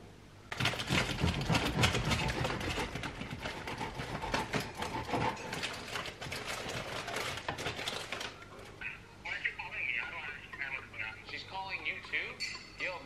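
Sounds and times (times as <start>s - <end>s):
bread knife sawing crusty bread: 0.8s - 7.9s.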